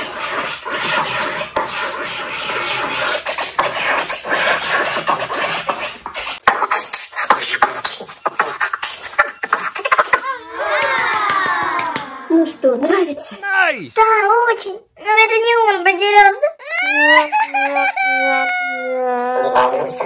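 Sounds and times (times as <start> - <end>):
record scratching: 0.0 - 10.3, 17.5 - 20.0.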